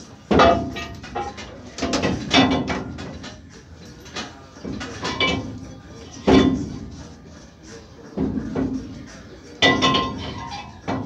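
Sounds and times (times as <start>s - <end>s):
metal clanks on truck hub: 0.3s - 5.6s, 6.2s - 6.9s, 9.6s - 11.0s.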